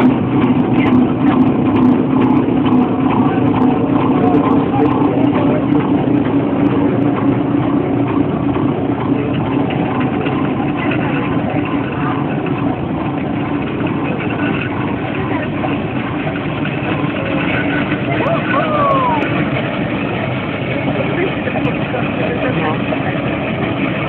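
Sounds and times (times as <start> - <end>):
steam traction engines running: 0.0 - 24.0.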